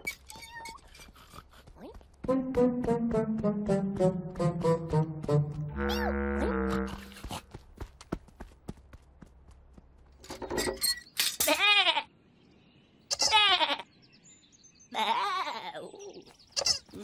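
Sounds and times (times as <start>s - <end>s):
cartoon lamb bleating: 5.7s - 7.2s.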